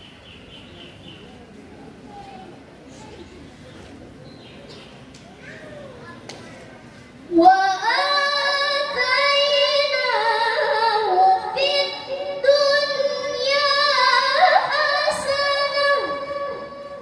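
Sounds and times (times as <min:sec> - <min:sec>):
woman reciting melodically: 0:07.3 - 0:17.0.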